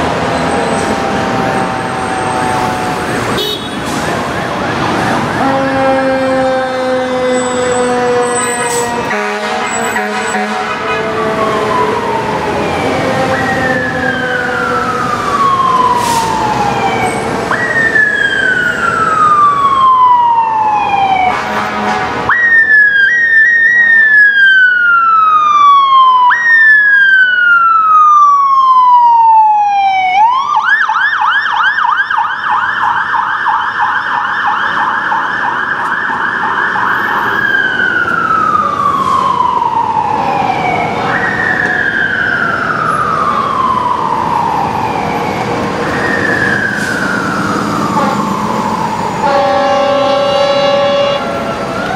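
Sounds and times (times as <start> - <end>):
city traffic: 0.0 - 51.9
fire engine siren wailing: 0.0 - 51.9
siren yelp: 0.0 - 51.9
steady horn tone: 3.3 - 3.9, 5.3 - 11.7, 21.3 - 22.2, 47.9 - 48.3, 49.2 - 51.3.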